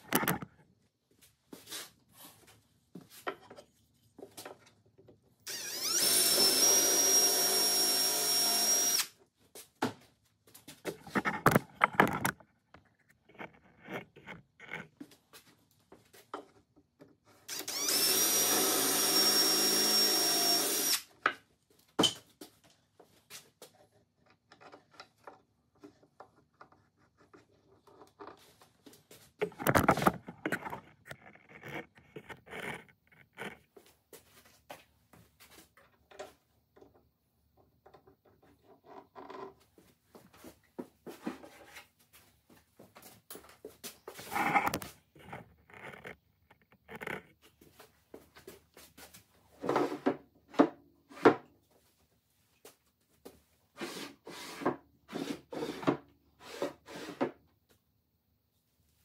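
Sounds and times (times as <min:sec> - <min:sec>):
wooden drawers scraping: 0:29.4 - 0:33.6.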